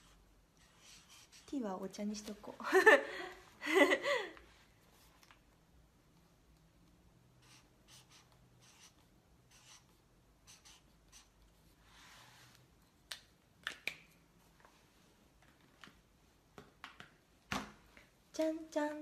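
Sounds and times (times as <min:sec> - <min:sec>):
pen scratching on paper: 0:00.0 - 0:01.6, 0:07.4 - 0:11.8.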